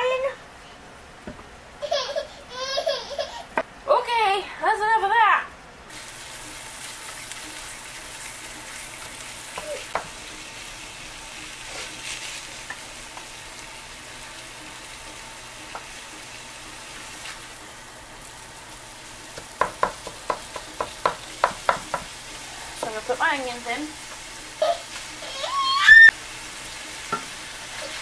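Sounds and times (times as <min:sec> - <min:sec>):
meat sizzling in a skillet: 0:05.9 - 0:28.0
spatula tapping the pan: 0:09.5 - 0:10.2, 0:19.3 - 0:22.2, 0:27.1 - 0:27.4.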